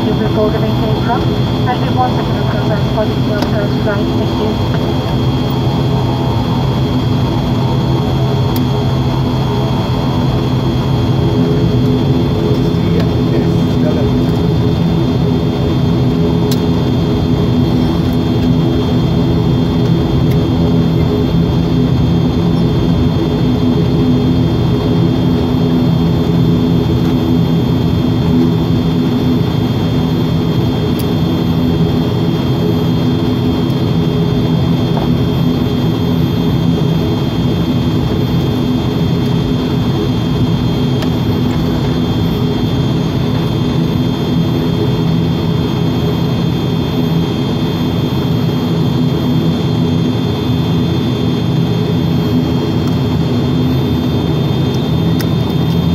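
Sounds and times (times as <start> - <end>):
turboprop engines droning: 0.0 - 55.9.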